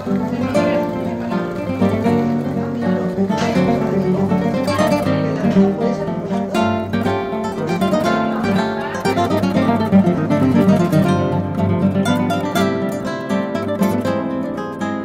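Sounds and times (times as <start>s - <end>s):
flamenco guitar music: 0.0s - 15.0s.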